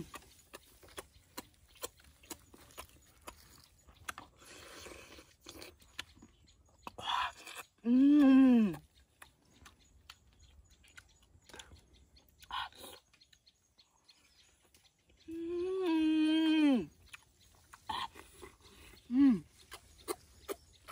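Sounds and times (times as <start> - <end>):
man chewing food: 0.0 - 20.9
man humming mmm: 15.3 - 16.9, 19.1 - 19.5.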